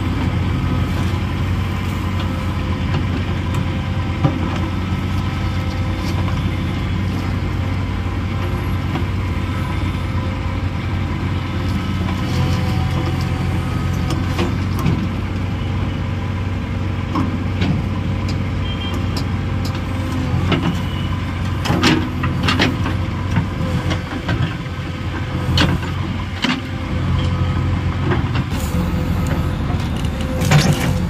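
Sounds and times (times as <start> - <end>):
diesel engine running: 0.0 - 31.0
hydraulic boom working: 28.4 - 31.0.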